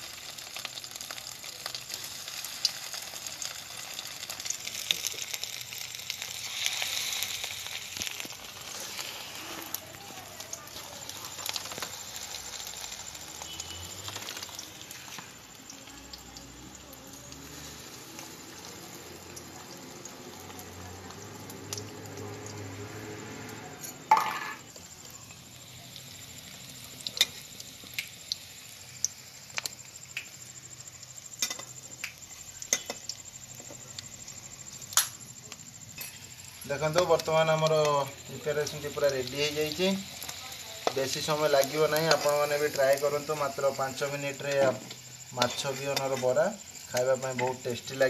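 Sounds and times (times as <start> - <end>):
deep-frying in hot oil sizzling: 0.0 - 48.0.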